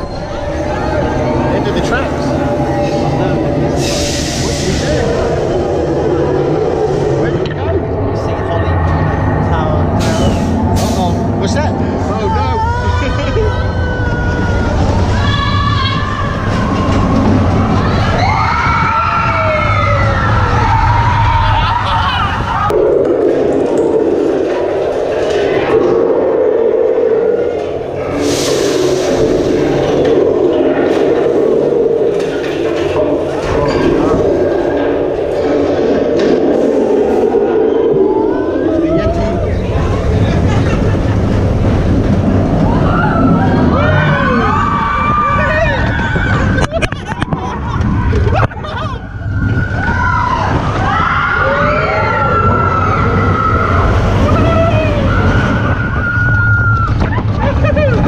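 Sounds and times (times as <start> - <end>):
roller coaster train rumbling: 0.0 - 58.0
riders screaming: 42.2 - 58.0.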